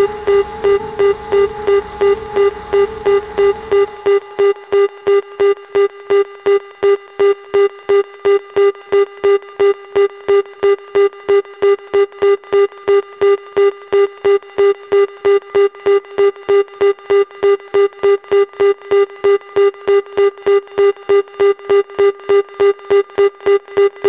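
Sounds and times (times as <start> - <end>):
electronic repeating beep: 0.0 - 6.3.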